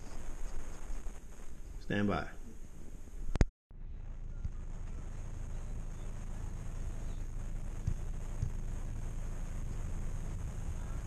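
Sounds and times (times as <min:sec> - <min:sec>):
low rumble inside car: 0:03.7 - 0:11.0.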